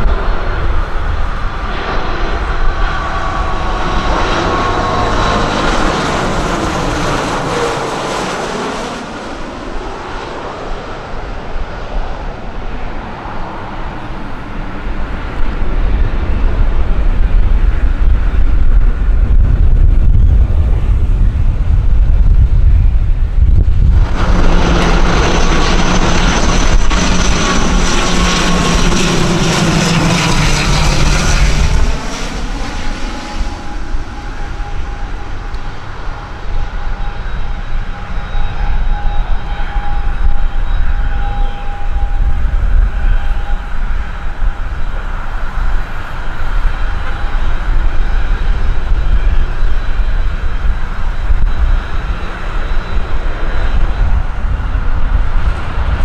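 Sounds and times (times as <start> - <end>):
turboprop airliner drone: 0.0 - 56.0
wind rumble on microphone: 0.0 - 56.0.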